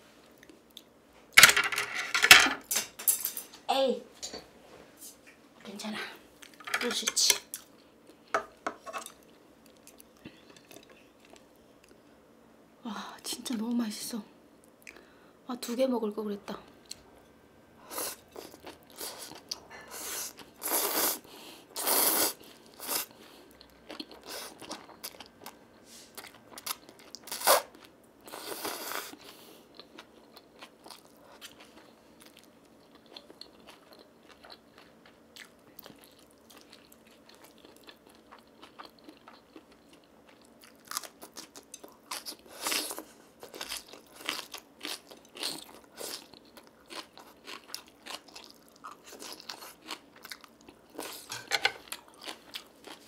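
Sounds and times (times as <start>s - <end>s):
chewing with crunches: 26.2s - 53.0s.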